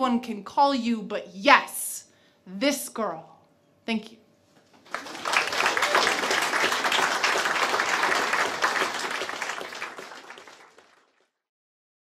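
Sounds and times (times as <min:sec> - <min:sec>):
audience applauding: 0:04.8 - 0:11.3.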